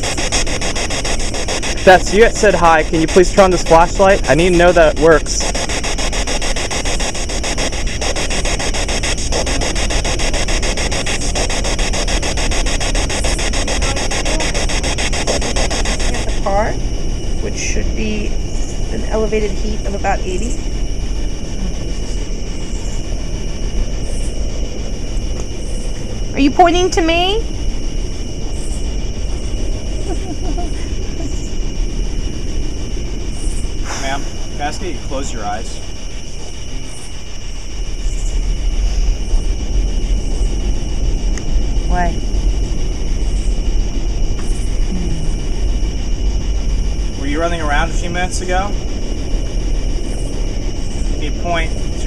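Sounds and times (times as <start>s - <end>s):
pulsing static hiss: 0.0s - 52.0s
low rumbling background noise: 13.0s - 52.0s.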